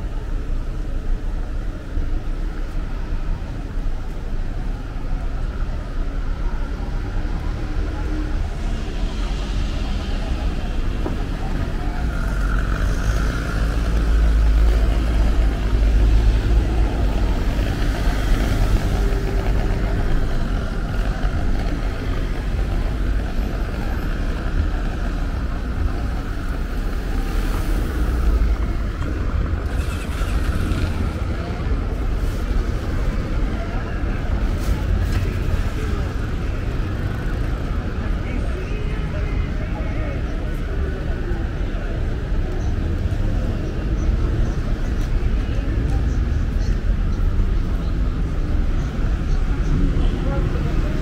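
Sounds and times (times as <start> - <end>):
cars passing rumble: 0.0 - 51.0.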